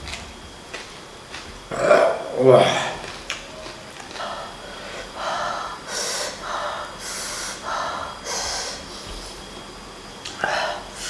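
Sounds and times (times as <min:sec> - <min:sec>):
man hissing breaths through teeth: 0:04.4 - 0:09.5.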